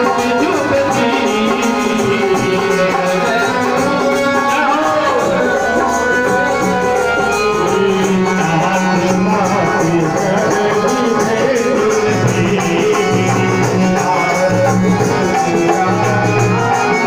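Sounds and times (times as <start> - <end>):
group singing: 0.0 - 17.0
hand percussion beat: 0.0 - 17.0
harmonium chords: 0.0 - 17.0.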